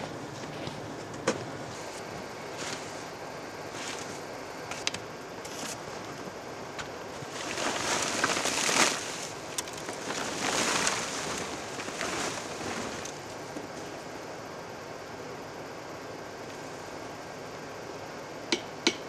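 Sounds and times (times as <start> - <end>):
snow sliding off: 7.2 - 13.2.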